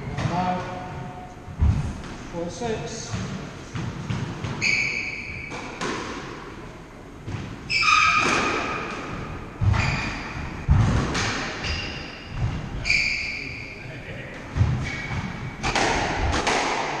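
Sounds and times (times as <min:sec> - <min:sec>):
squash ball striking rackets and walls: 0:01.6 - 0:02.2, 0:03.0 - 0:13.6, 0:14.4 - 0:17.0
shoes squeaking on wooden floor: 0:04.4 - 0:05.8, 0:09.6 - 0:10.9, 0:11.6 - 0:13.8
heavy thuds of footfalls: 0:09.5 - 0:11.5.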